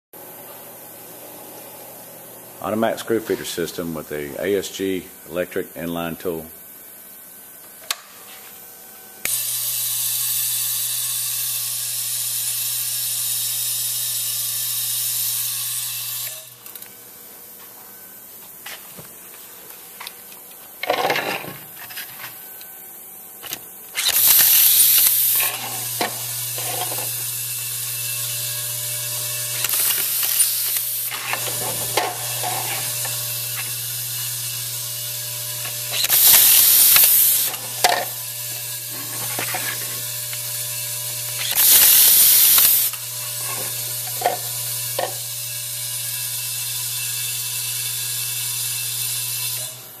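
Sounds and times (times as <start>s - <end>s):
screwdriver whirring and clicking: 9.2s - 17.0s, 23.4s - 49.8s
feeder unit humming: 16.2s - 47.4s
air hiss bursts: 24.0s - 27.3s, 35.9s - 37.8s, 41.4s - 43.8s.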